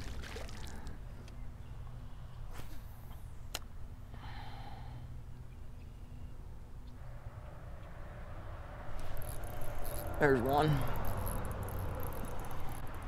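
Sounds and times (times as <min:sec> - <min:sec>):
low steady rumble: 0:00.0 - 0:13.0
reel click: 0:09.0 - 0:13.0.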